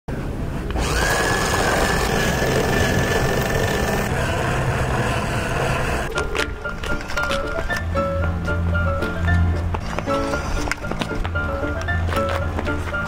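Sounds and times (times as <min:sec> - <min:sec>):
toy car electric motor whining: 0:00.8 - 0:06.1
music: 0:06.1 - 0:13.0.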